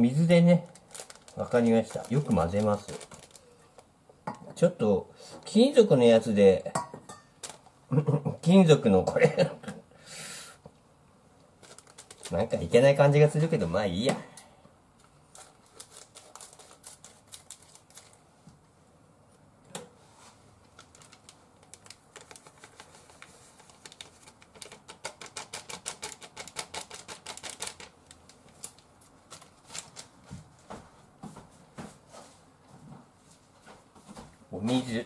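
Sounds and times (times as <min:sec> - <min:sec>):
plastic packet crinkling: 0:00.1 - 0:03.9, 0:07.4 - 0:07.7, 0:11.6 - 0:13.4, 0:15.3 - 0:18.2, 0:20.6 - 0:30.2
scissors snipping plastic packet: 0:00.7 - 0:03.4, 0:11.6 - 0:12.4, 0:15.4 - 0:18.2, 0:20.8 - 0:23.0, 0:23.6 - 0:30.1.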